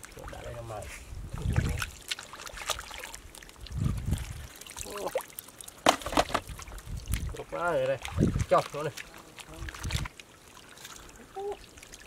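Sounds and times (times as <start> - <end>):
shallow water splashing: 0.0 - 12.0.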